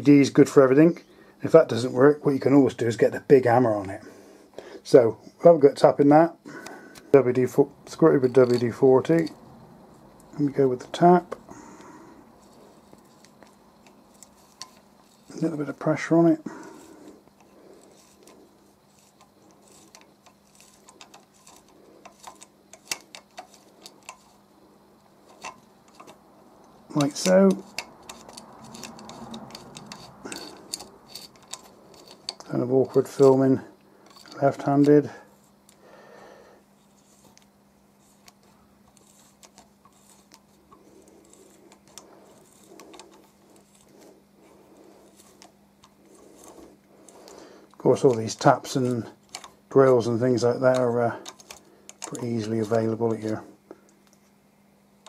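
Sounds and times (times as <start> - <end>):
faint steady hum: 0.0 - 55.0
hand tap clicking and scraping: 16.6 - 24.4, 25.3 - 33.4.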